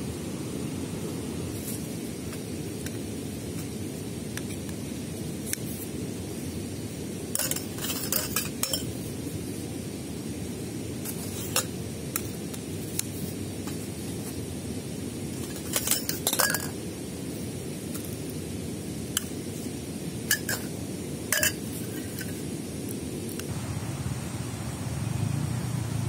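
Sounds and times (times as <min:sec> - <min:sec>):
hollow pole sections clinking: 0:15.4 - 0:16.8, 0:21.3 - 0:22.3.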